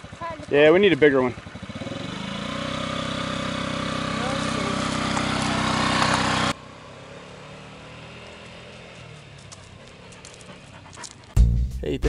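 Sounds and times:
scooter engine running: 0:00.0 - 0:11.4.

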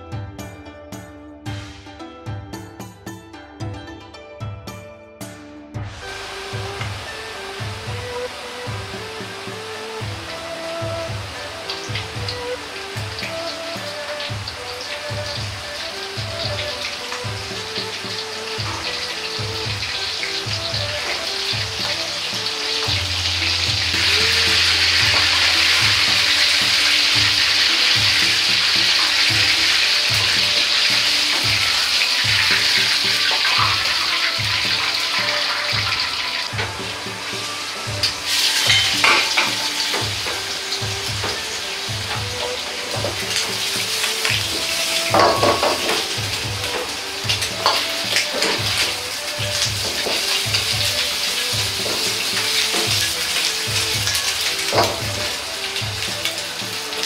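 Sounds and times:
background music with steady beat: 0:00.0 - 0:57.0
shrimp deep-frying in hot oil: 0:05.8 - 0:57.0
ladle clinking against wok: 0:38.6 - 0:40.4.

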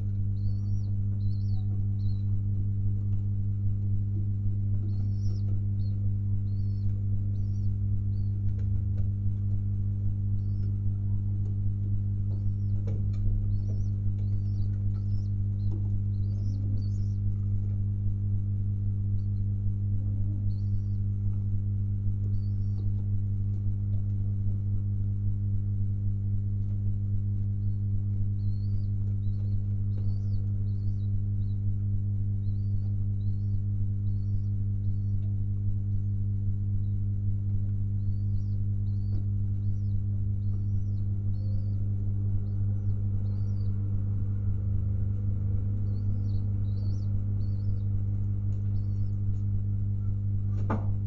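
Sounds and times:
steady low hum: 0:00.0 - 0:51.0
faint high chirps: 0:00.1 - 0:02.4, 0:04.8 - 0:08.6, 0:12.2 - 0:17.8, 0:19.1 - 0:21.6, 0:22.2 - 0:23.2, 0:27.5 - 0:31.7, 0:38.0 - 0:43.9
pigeons cooing: 0:12.3 - 0:17.7.

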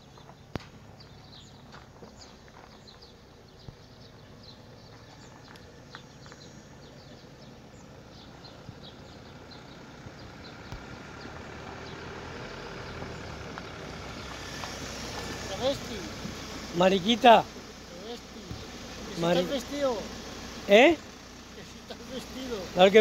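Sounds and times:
small birds chirping: 0:00.0 - 0:23.0
steady engine hum: 0:00.0 - 0:23.0.

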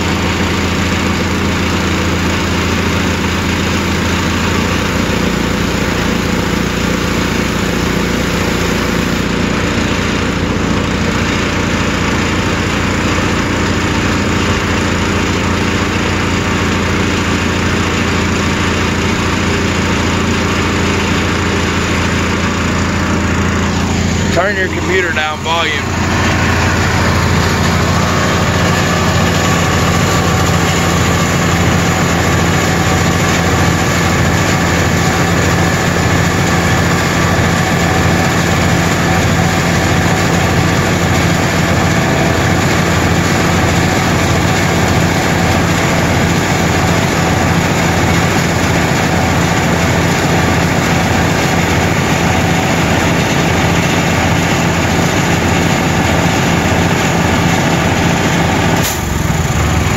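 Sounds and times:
gas-engine air compressor running: 0:00.0 - 0:59.9.

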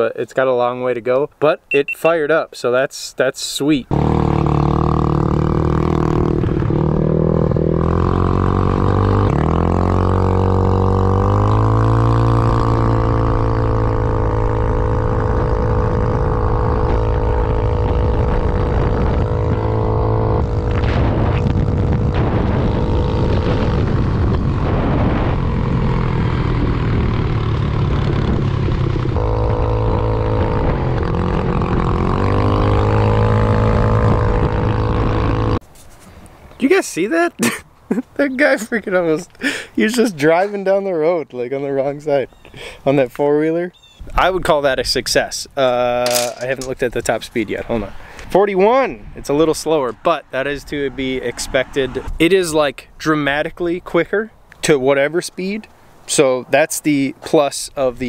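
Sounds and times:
scooter engine revving: 0:03.9 - 0:35.6.

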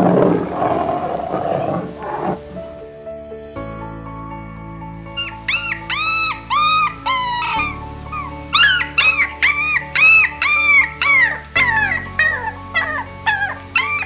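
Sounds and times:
background music with held notes: 0:01.5 - 0:14.0
dog yelping: 0:05.2 - 0:07.7, 0:08.6 - 0:14.0.

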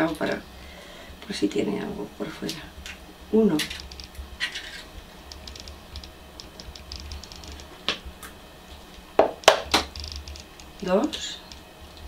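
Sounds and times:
eggshell clicks and crackles: 0:03.6 - 0:12.0.

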